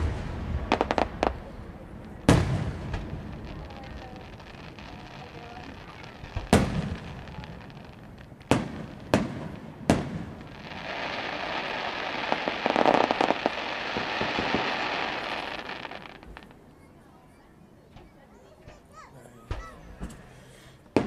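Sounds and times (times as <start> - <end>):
fireworks booming: 0.0 - 16.7
fireworks crackling: 0.0 - 16.8.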